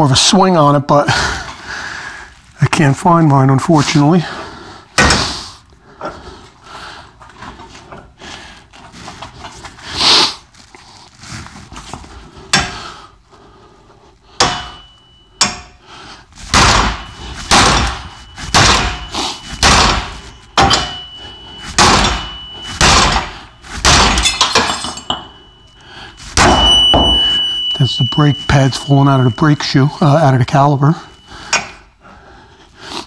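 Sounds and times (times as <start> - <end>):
sledgehammer striking metal wrench: 12.5 - 12.8, 14.4 - 15.8, 16.5 - 29.8, 31.1 - 31.9.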